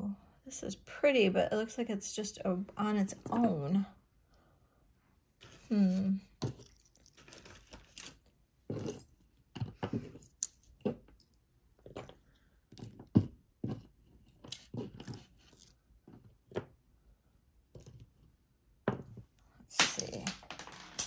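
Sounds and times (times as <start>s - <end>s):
jewelry clinking and rattling: 3.1s - 3.8s, 5.4s - 16.7s, 19.7s - 21.0s.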